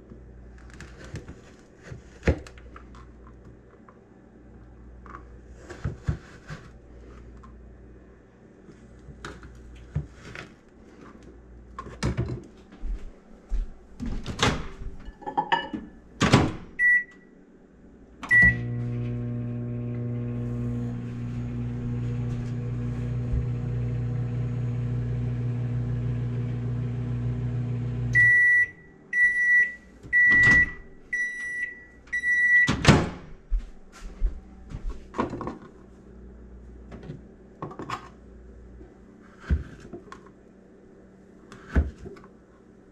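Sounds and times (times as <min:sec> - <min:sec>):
microwave keypad beeps: 0:16.8 - 0:17.2, 0:18.3 - 0:18.7, 0:28.2 - 0:32.8
microwave end beeps: 0:16.8 - 0:17.3, 0:18.2 - 0:20.3, 0:27.4 - 0:32.8
microwave humming: 0:18.0 - 0:33.2.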